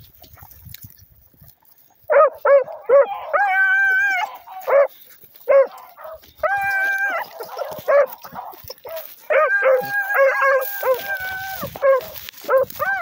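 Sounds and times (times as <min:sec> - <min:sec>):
hound baying and barking: 0:02.1 - 0:13.0
light rustling: 0:04.2 - 0:13.0.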